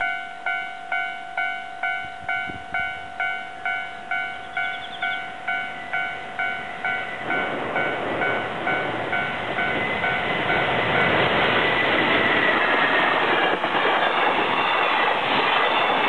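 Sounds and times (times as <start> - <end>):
level crossing bell ringing: 0.0 - 10.2
freight train rumble: 0.0 - 16.0.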